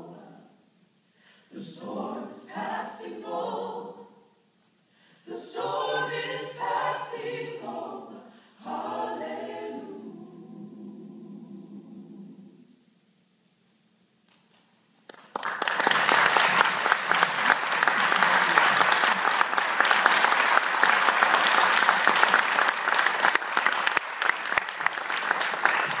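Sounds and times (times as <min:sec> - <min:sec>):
audience applause: 0:15.1 - 0:26.0.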